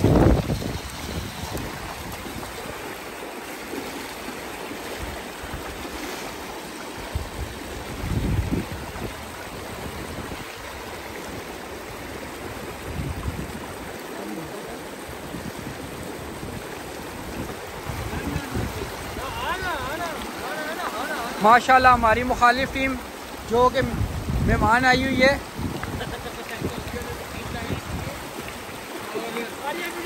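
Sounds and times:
wind buffeting microphone: 0.0s - 3.0s, 7.0s - 13.9s, 15.0s - 20.0s, 23.4s - 29.1s
river water rushing: 0.0s - 30.0s.

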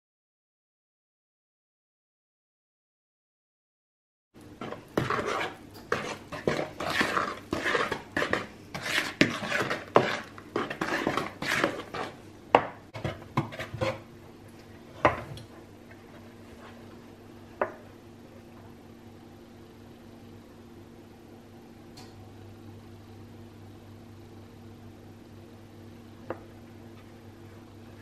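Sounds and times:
spatula stirring batter in bowl: 4.4s - 17.8s.

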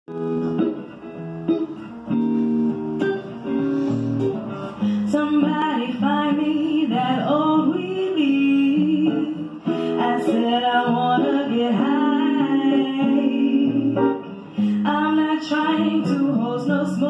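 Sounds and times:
guitar strumming chords: 0.1s - 17.0s
woman singing: 4.8s - 17.0s.

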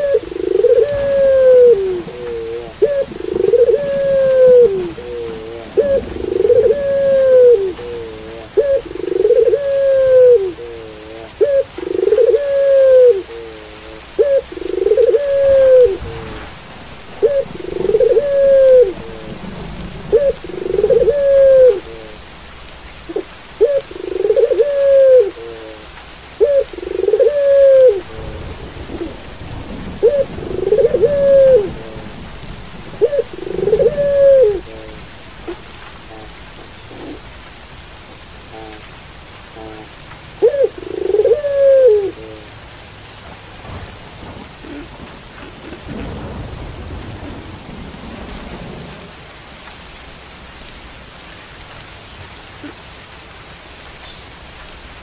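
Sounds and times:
dove cooing: 0.0s - 22.3s, 23.0s - 38.9s, 39.5s - 42.6s, 44.5s - 46.5s.

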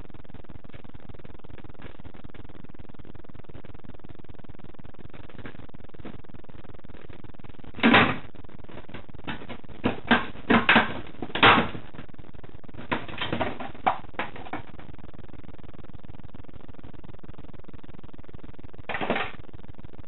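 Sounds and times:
plastic cat flap clattering: 9.3s - 11.8s, 12.9s - 14.6s, 18.9s - 19.3s.

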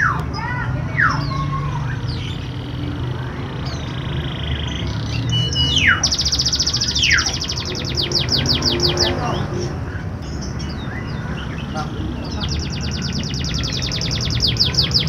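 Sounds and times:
canary singing: 0.0s - 15.0s.

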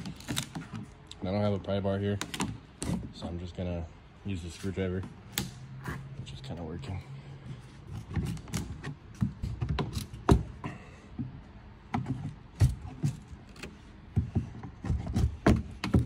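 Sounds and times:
wood knocks and creaks: 8.0s - 16.0s.

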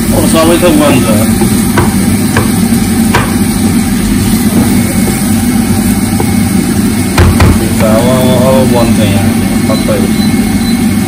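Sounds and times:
steady low hum: 0.0s - 11.0s
wooden spatula knocking frying pan: 1.3s - 3.8s, 4.4s - 5.4s, 7.1s - 8.0s.

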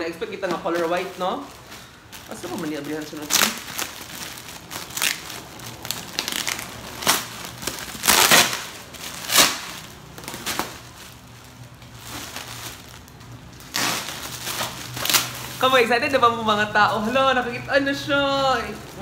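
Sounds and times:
plastic wrapping crinkling: 0.0s - 19.0s
packing tape pulled off: 2.2s - 15.6s.

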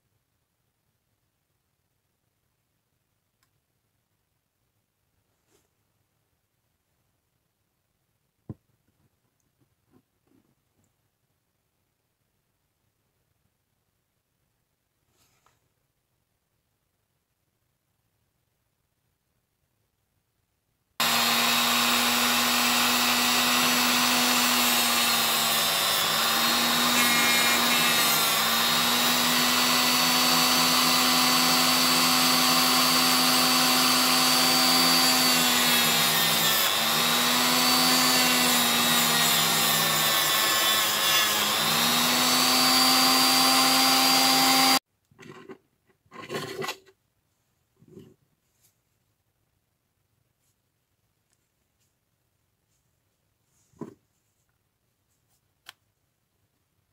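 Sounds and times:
rotary tool grinding metal: 21.0s - 46.9s.

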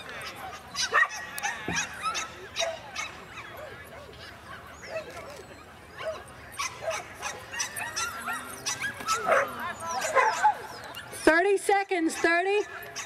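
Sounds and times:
dog barking and yipping: 0.2s - 4.1s, 6.0s - 11.3s, 12.1s - 13.0s.

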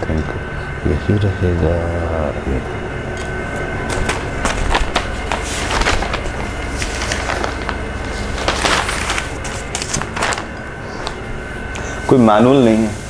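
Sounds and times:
faint steady hum: 0.0s - 13.0s
packaging rustling: 3.9s - 11.6s.

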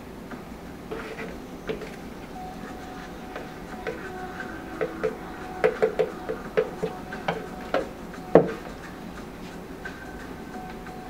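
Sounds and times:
stick knocking on plastic cup: 4.8s - 8.6s.

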